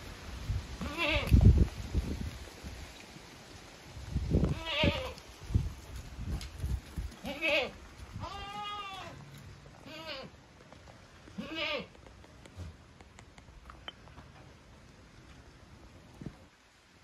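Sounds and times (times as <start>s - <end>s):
goats bleating: 7.2s - 9.2s, 9.8s - 10.4s, 11.4s - 11.9s.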